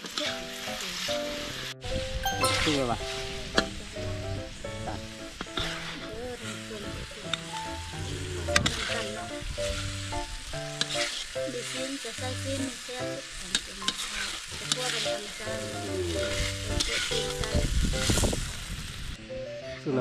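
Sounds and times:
vegetables sizzling in a pan: 0:00.0 - 0:19.2
light background melody: 0:00.5 - 0:13.3, 0:19.2 - 0:20.0
spatula scraping a pan: 0:10.8 - 0:12.9, 0:13.6 - 0:17.5.

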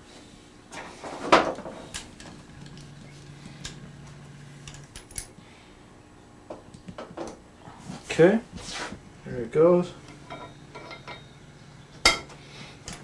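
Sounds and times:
hand tools clinking on metal: 0:10.1 - 0:11.3.

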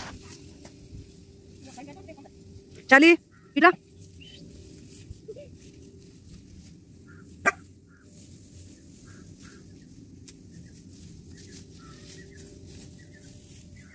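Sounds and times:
birds chirping: 0:02.0 - 0:04.8, 0:06.7 - 0:13.9
dog barking: 0:07.4 - 0:07.7.

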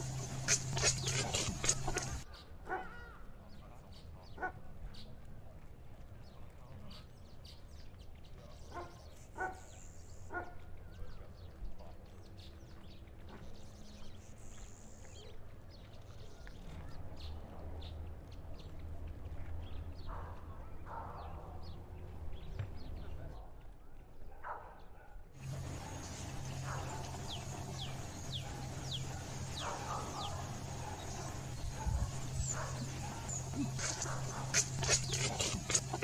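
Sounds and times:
animal calls: 0:00.0 - 0:03.3, 0:25.4 - 0:36.0.

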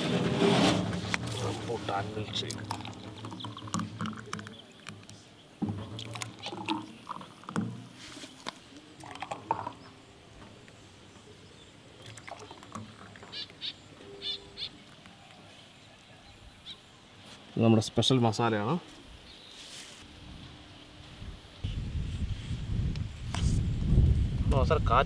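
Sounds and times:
birds calling: 0:01.3 - 0:17.8.

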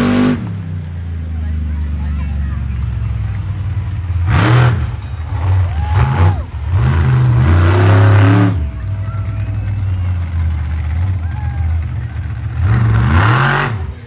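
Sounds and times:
truck engine revving: 0:00.0 - 0:14.0.

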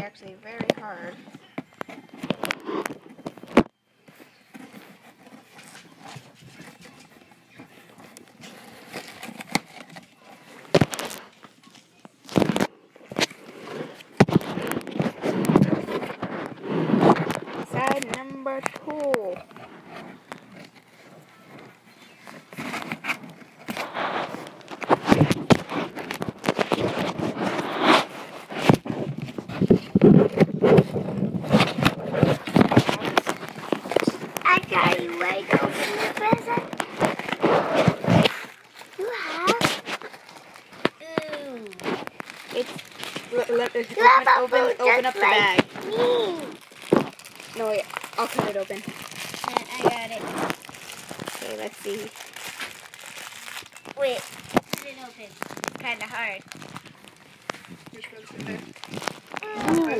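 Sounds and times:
cardboard box rustling: 0:00.6 - 0:59.9
scissors cutting cardboard: 0:08.0 - 0:11.2.

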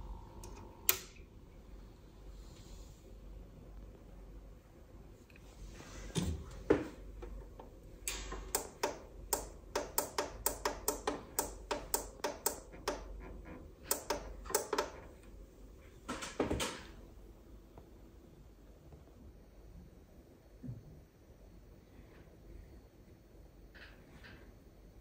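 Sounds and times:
multimeter clicking: 0:08.1 - 0:13.1, 0:13.8 - 0:15.0.

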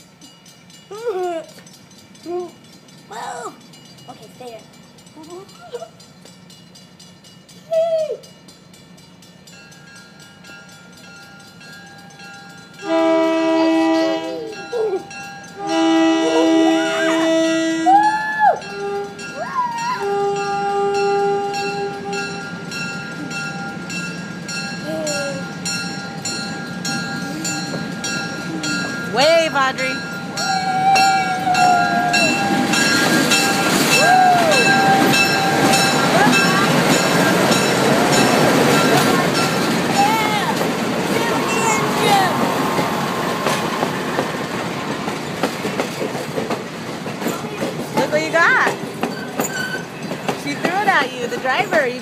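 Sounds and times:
crossing bell ringing: 0:00.0 - 0:52.0
diesel locomotives passing: 0:00.0 - 0:52.0
locomotive air horn chord: 0:12.8 - 0:14.4, 0:15.6 - 0:18.0, 0:18.7 - 0:22.5.

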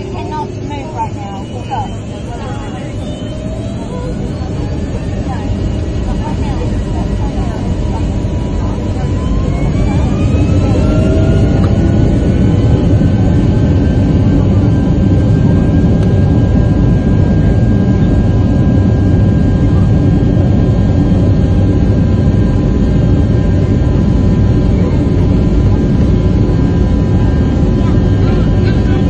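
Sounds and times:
jet engine rumble: 0:00.0 - 0:29.0
jet engine whine: 0:00.0 - 0:29.0.

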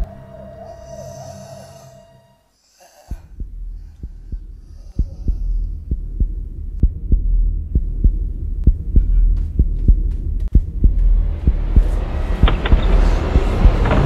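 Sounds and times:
low throbbing drone: 0:00.0 - 0:02.4, 0:03.1 - 0:14.0
heartbeat-like thump: 0:03.1 - 0:14.0.

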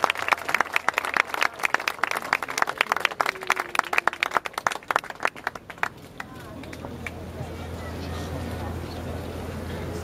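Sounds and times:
group of people applauding: 0:00.0 - 0:07.2.

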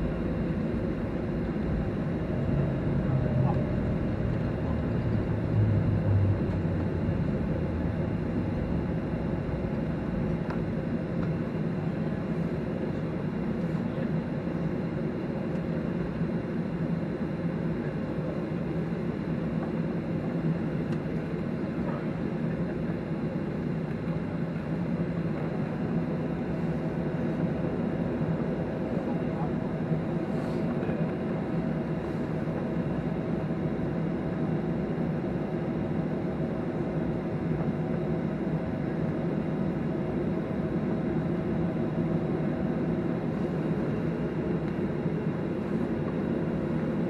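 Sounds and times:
low rumble: 0:00.0 - 0:09.4
jet engine and airflow rush: 0:00.0 - 0:47.0.

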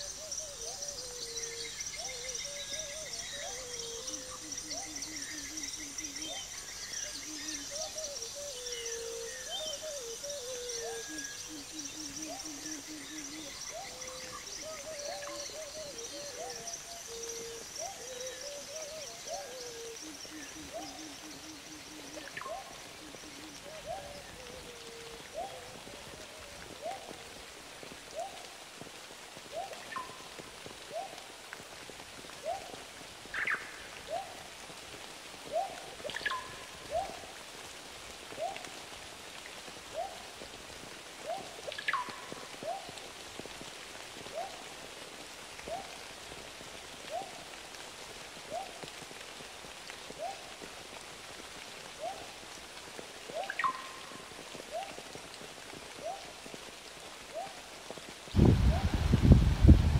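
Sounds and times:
background hiss: 0:00.0 - 0:59.9
high insect chirping: 0:10.1 - 0:23.6
water drips: 0:22.0 - 0:58.4.

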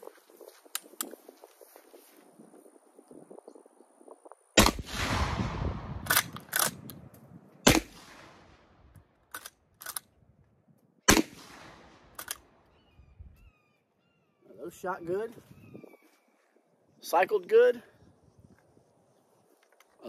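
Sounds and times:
shotgun shots: 0:04.6 - 0:06.8, 0:07.6 - 0:08.7, 0:11.1 - 0:12.3.

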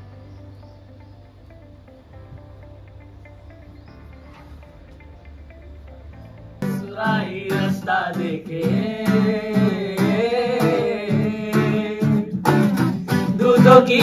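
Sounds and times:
acoustic guitar strumming: 0:00.0 - 0:14.0
young man singing: 0:06.6 - 0:14.0.

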